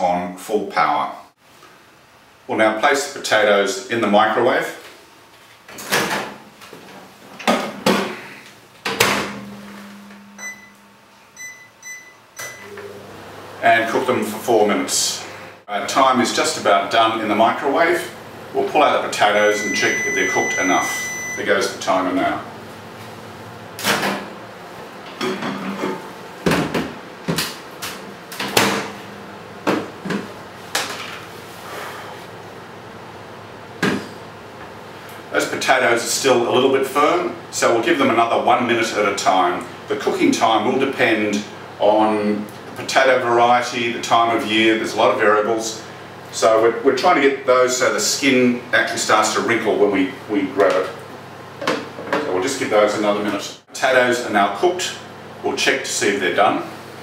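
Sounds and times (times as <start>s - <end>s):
microwave humming: 8.9s - 14.9s, 18.1s - 25.5s, 26.2s - 30.9s
keypad beeps: 10.1s - 10.8s, 11.4s - 12.9s, 19.6s - 21.4s.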